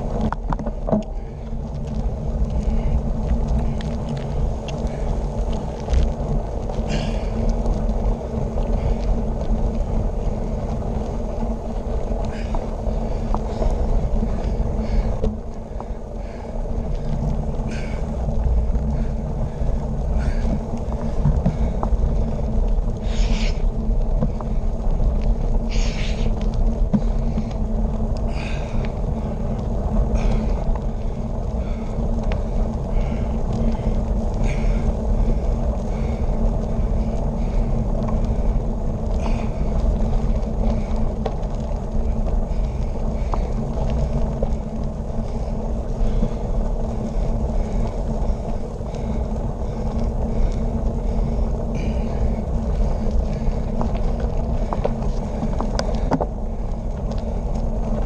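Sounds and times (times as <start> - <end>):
bicycle tyre and road noise: 0.0 - 58.0
wind buffeting microphone: 0.0 - 58.0.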